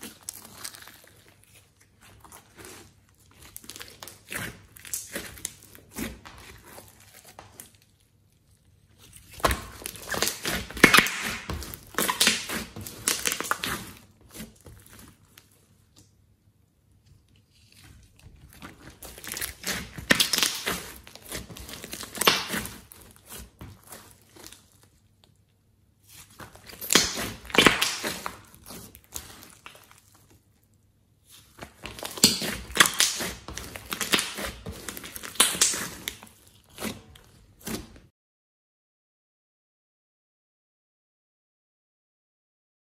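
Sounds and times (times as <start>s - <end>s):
slime squishing: 0.0s - 16.3s, 16.9s - 38.1s.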